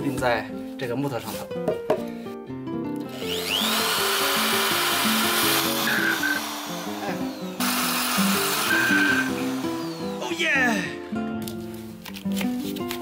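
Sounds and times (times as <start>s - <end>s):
background music: 0.0s - 13.0s
cordless drill grinding: 3.1s - 10.8s.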